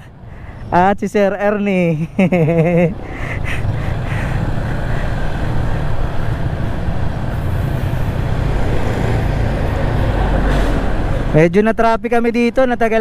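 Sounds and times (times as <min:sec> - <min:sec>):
road noise: 0:00.0 - 0:13.0
rushing wind: 0:02.8 - 0:11.4.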